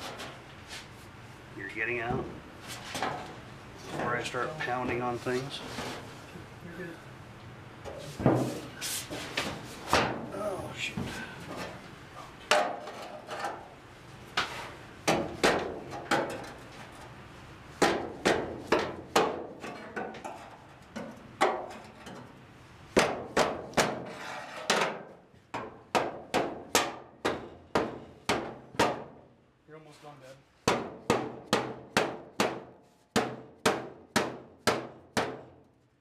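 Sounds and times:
hammer pounding on steel: 17.8 - 19.7, 22.9 - 24.1, 25.6 - 29.2, 30.6 - 35.6.

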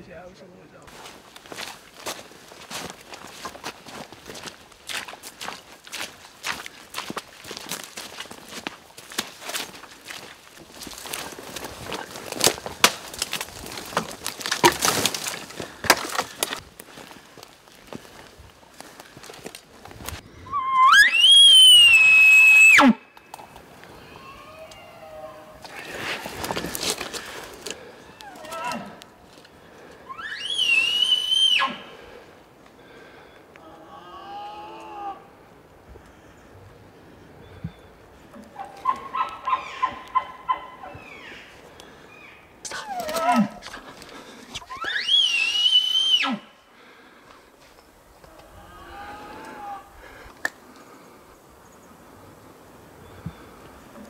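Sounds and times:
elk bugling: 20.3 - 23.0, 38.3 - 41.5
fainter lower elk call: 20.4 - 23.0, 24.0 - 25.6, 30.1 - 32.0, 44.6 - 46.5.

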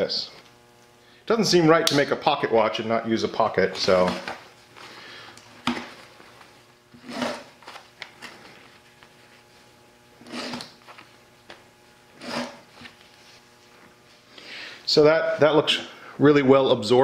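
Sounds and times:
knife cutting denim: 7.0 - 7.5, 10.2 - 10.8, 12.2 - 12.7.

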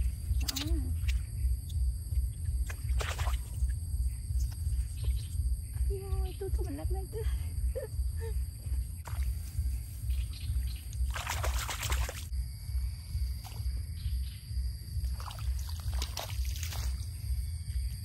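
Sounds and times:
low rumble: 0.0 - 18.0
water splashing and sloshing: 2.2 - 5.4, 9.0 - 10.2, 10.8 - 12.3, 15.0 - 17.4.

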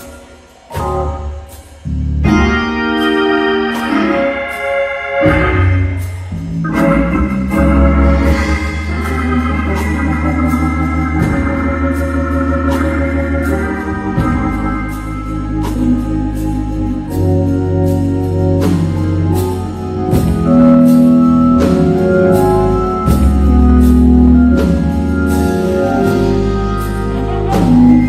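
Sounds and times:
gospel organ playing: 0.0 - 28.0
sharp beat hits: 3.8 - 17.2.

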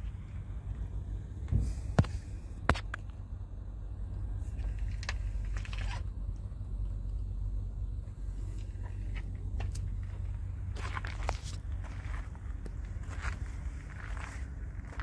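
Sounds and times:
diesel truck engine idling: 0.0 - 15.0.

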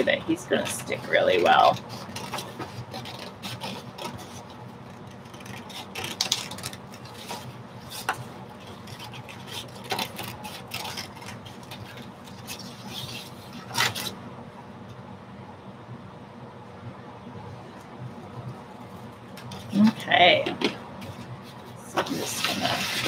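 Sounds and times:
paper rustling: 0.5 - 14.2, 21.0 - 23.0
scissors snipping paper: 0.6 - 14.1.

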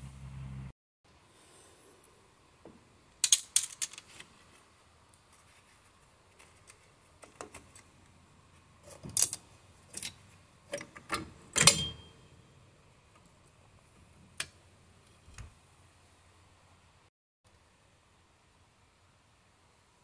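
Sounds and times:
metal parts clicking and clinking: 3.2 - 4.2, 8.9 - 12.1.

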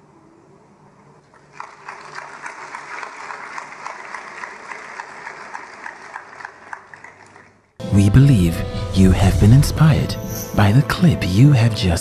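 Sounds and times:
crowd clapping in applause: 1.4 - 7.7.

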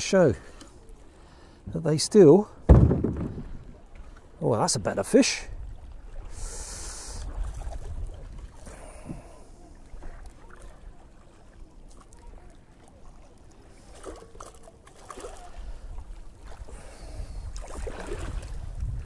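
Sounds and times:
faint water splashes: 0.0 - 19.0
wind rumble on microphone: 5.5 - 9.3, 15.8 - 19.0.

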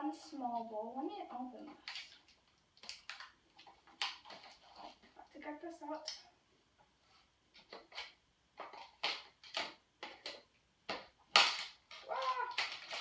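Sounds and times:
plastic packaging crinkling: 1.7 - 5.2, 7.6 - 13.0.

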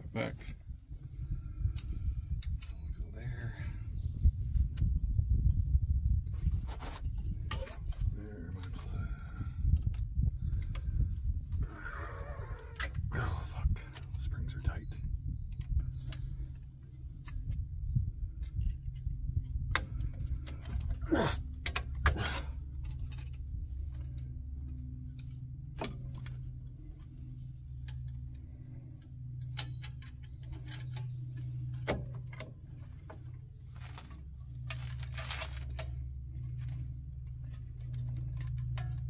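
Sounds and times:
steady low hum: 0.0 - 39.0
metallic clinks of tools: 22.8 - 24.3, 34.6 - 39.0.

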